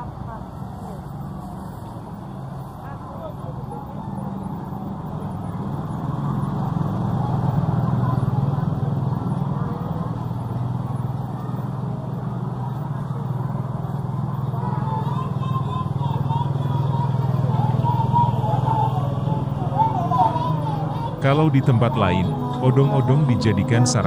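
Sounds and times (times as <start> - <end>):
motorcycle engine running: 5.4 - 23.0.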